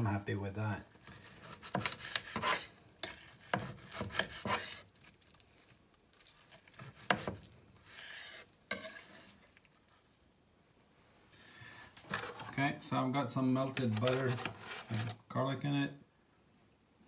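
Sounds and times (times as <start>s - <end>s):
knife slicing steak: 1.0s - 4.9s, 6.3s - 9.5s.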